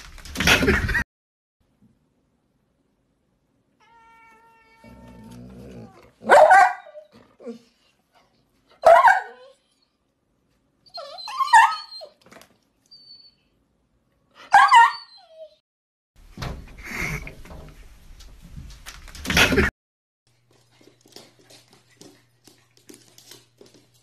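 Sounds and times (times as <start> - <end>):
dog whimpering and yipping: 10.8 - 12.2, 14.5 - 15.6.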